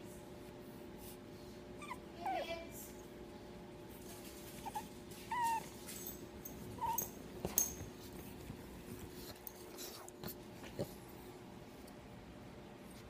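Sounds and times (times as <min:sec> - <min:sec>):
puppy whining: 0:01.8 - 0:02.6, 0:04.3 - 0:08.1.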